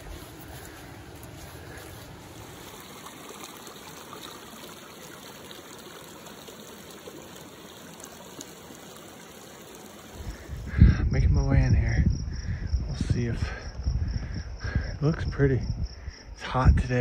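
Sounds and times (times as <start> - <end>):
creek flowing over stones: 0.0 - 10.8.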